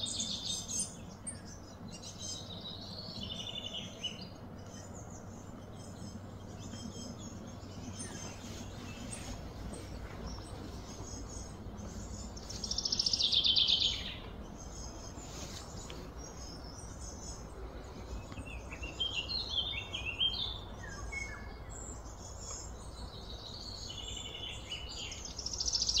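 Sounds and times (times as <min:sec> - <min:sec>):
birds chirping: 0:00.0 - 0:26.0
outdoor background hum: 0:00.0 - 0:26.0.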